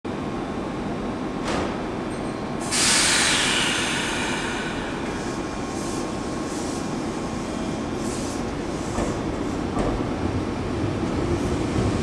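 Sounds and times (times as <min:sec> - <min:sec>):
compressed-air hiss: 0:02.7 - 0:06.9.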